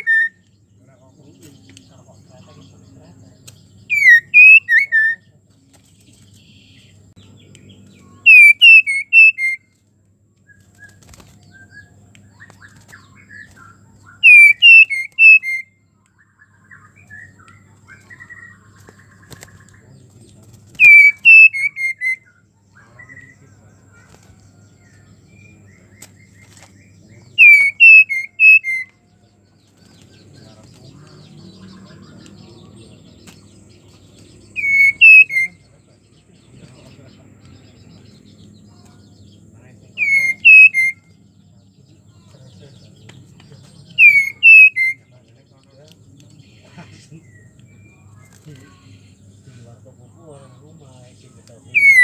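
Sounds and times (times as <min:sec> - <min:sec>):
bird whistling calls: 0:00.0 - 0:00.4, 0:03.9 - 0:05.2, 0:08.2 - 0:09.7, 0:10.5 - 0:15.8, 0:20.7 - 0:22.4, 0:27.2 - 0:29.1, 0:34.5 - 0:35.6, 0:40.0 - 0:41.2, 0:43.9 - 0:45.1, 0:51.7 - 0:52.0.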